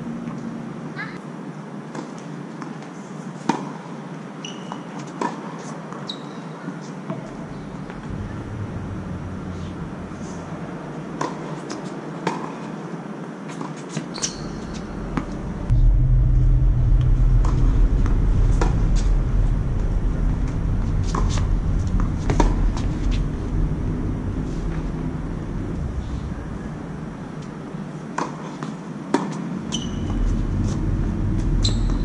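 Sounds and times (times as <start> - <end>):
low steady rumble: 7.7 - 11.6, 14.4 - 28.3, 29.5 - 32.0.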